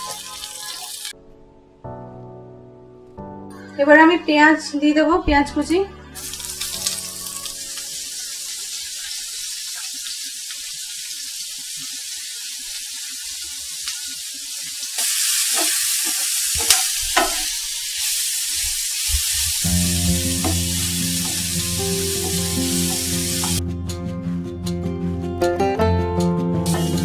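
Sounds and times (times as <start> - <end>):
onions sizzling in oil: 0.0 - 1.2, 6.2 - 23.6, 26.7 - 27.0
spatula knocking and scraping pan: 15.6 - 17.5.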